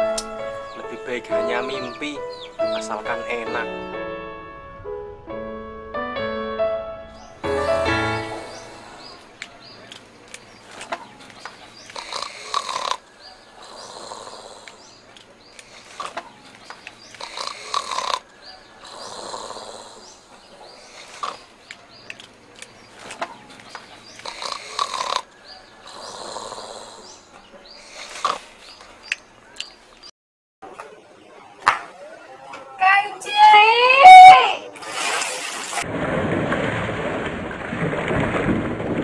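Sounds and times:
man snoring: 0:12.0 - 0:13.0, 0:13.6 - 0:14.9, 0:17.2 - 0:18.2, 0:18.8 - 0:20.2, 0:24.2 - 0:28.4.

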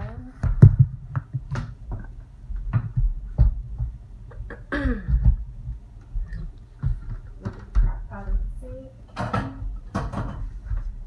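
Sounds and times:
kitchen equipment knocks and clicks: 0:09.1 - 0:10.5.

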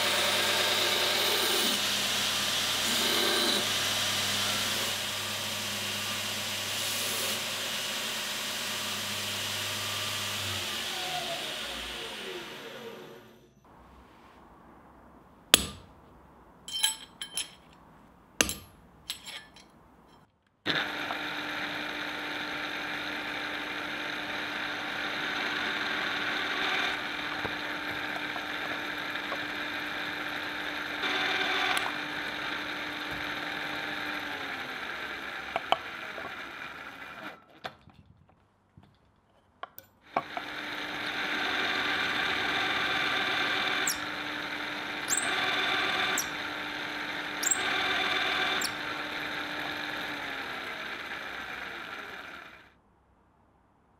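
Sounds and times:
drill press boring steel: 0:00.0 - 0:13.5, 0:20.7 - 0:37.4, 0:40.1 - 0:52.7
metal taps on steel: 0:18.4 - 0:20.2.

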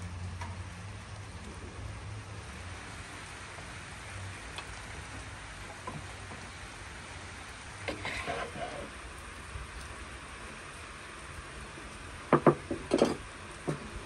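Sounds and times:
steady rain: 0:00.0 - 0:14.0
wooden spatula scraping bowl: 0:07.9 - 0:08.9.

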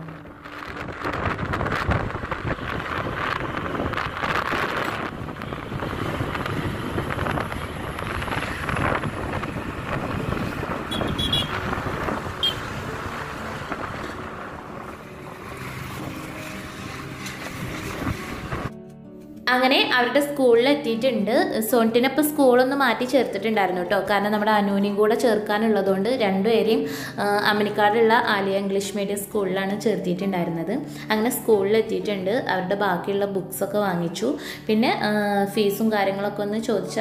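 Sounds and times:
wind rushing over microphone: 0:00.0 - 0:18.8
motorbike engine and road noise: 0:00.0 - 0:18.9.

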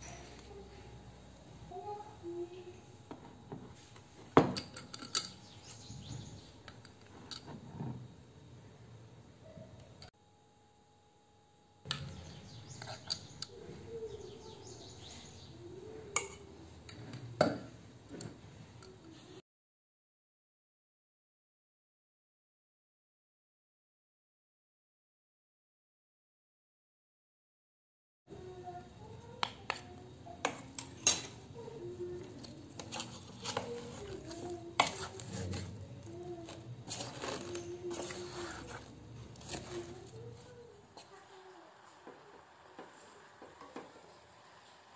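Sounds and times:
faint chirping: 0:04.8 - 0:07.0, 0:11.9 - 0:16.8
wooden spatula scraping steel pot: 0:07.0 - 0:08.1, 0:12.7 - 0:13.4, 0:30.4 - 0:41.3.

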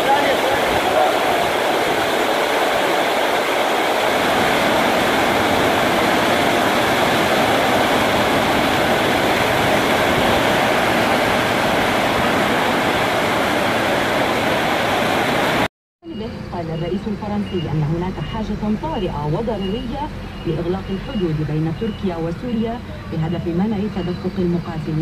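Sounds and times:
heavy rain pouring: 0:00.0 - 0:15.7.

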